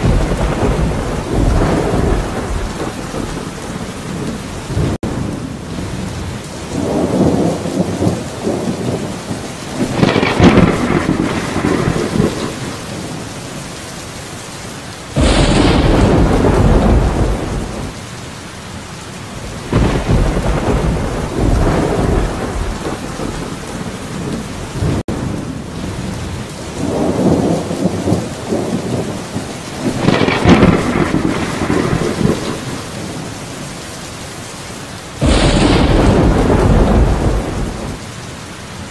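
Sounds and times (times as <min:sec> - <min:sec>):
loud thunder clap: 0:00.0 - 0:03.9, 0:09.8 - 0:12.8, 0:15.2 - 0:18.0, 0:19.6 - 0:25.1, 0:29.8 - 0:32.9, 0:35.2 - 0:38.0
rolling thunder: 0:00.0 - 0:13.3, 0:15.1 - 0:18.0, 0:19.4 - 0:33.6, 0:35.2 - 0:38.2
steady rain: 0:00.0 - 0:38.9.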